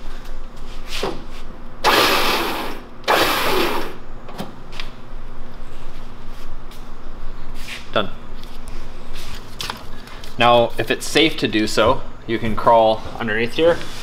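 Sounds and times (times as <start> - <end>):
electric winch motor running: 1.8 - 4.0.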